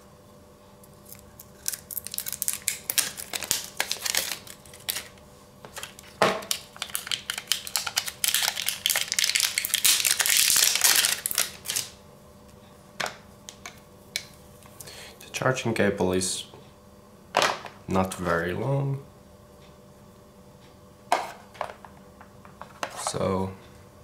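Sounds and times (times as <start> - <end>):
plastic wrapping crinkling: 1.1 - 12.0.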